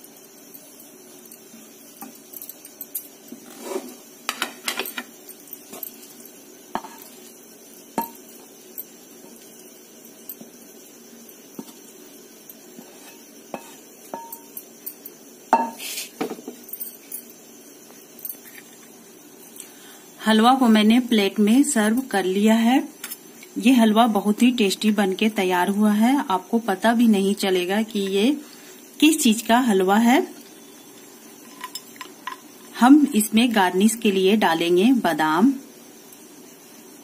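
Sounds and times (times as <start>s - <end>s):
metal spoon clinking on pan and plate: 8.0s - 8.4s, 13.0s - 15.8s, 31.4s - 32.5s.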